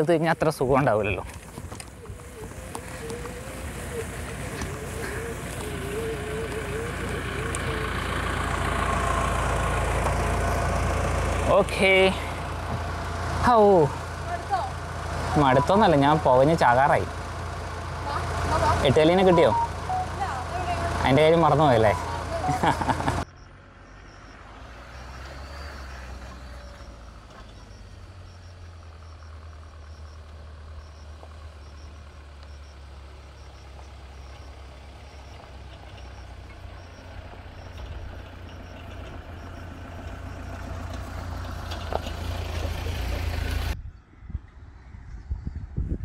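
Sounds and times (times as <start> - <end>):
vehicle engine drone: 0.0 - 46.0
faint high chirp: 19.0 - 20.8, 21.6 - 40.5.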